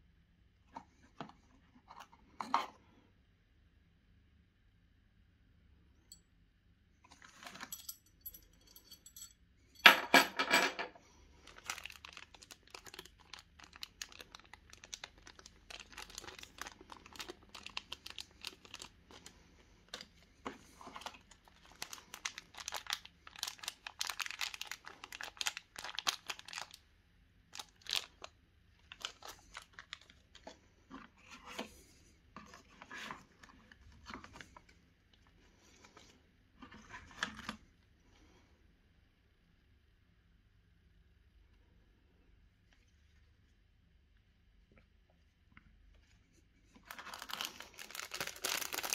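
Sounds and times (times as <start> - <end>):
plastic bags crinkling: 11.4 - 26.8, 27.5 - 30.5, 46.8 - 48.9.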